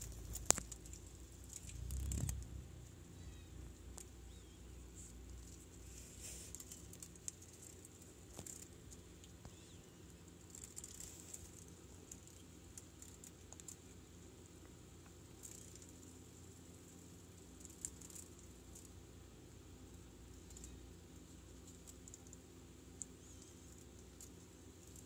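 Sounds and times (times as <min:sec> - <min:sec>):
scattered ticks: 0:00.0 - 0:02.5, 0:05.2 - 0:16.2, 0:17.2 - 0:18.9.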